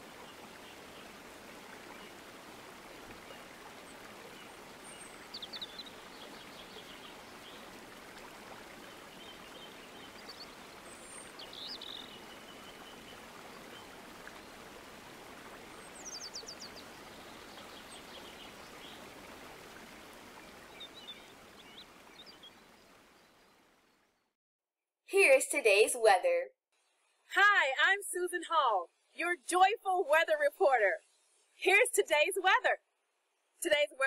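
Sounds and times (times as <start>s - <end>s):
flowing water: 0.0s - 24.2s
small birds chirping: 3.1s - 7.7s, 8.8s - 14.4s, 15.7s - 19.2s, 20.4s - 23.6s.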